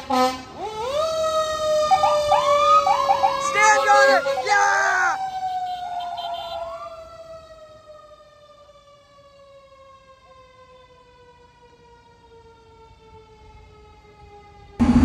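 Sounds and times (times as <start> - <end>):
mechanical siren winding down: 0.8 - 4.5.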